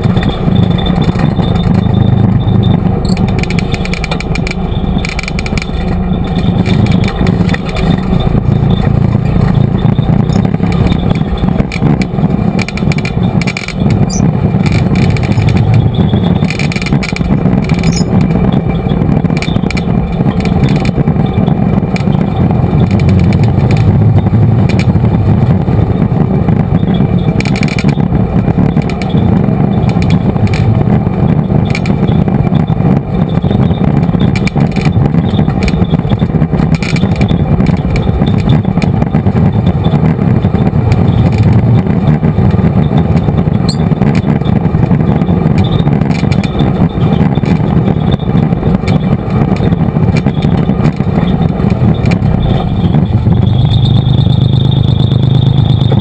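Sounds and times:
knocks and rattles: 0:00.0 - 0:56.0
vehicle engine and road noise: 0:00.0 - 0:56.0.

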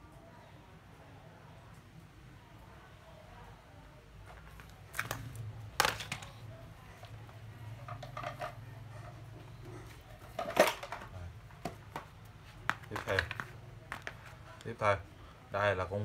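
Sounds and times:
plastic power tools clattering: 0:10.2 - 0:11.1.

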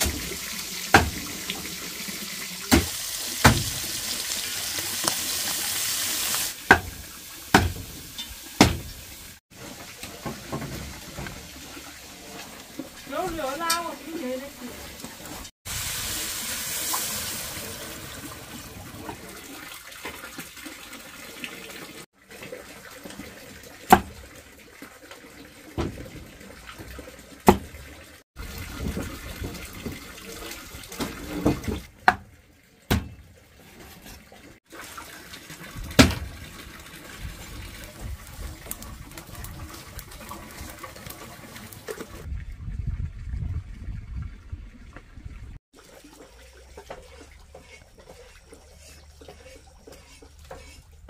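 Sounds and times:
water running: 0:00.0 - 0:42.3
sharp knocks: 0:06.7 - 0:07.9, 0:08.6 - 0:08.9.

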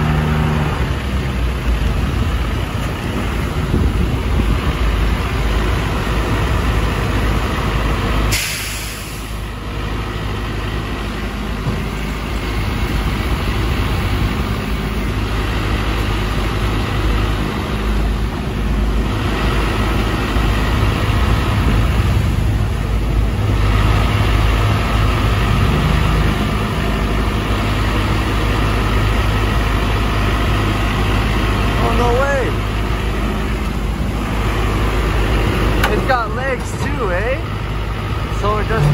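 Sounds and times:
street sweeper running: 0:00.0 - 0:38.9
sharp hiss of air: 0:08.3 - 0:09.4.

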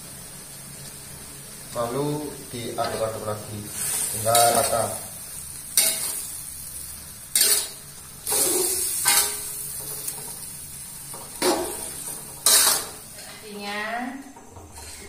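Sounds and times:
pan sizzling: 0:00.0 - 0:15.0
metal spatula scraping a wok: 0:05.8 - 0:06.3, 0:07.3 - 0:10.1, 0:11.4 - 0:13.4, 0:14.5 - 0:15.0.

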